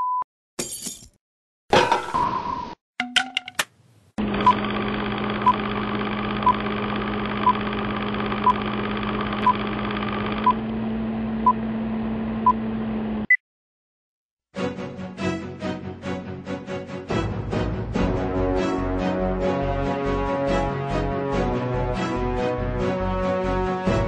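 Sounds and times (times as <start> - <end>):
whirring with low hum: 4.2 - 13.3
music: 14.5 - 24.0.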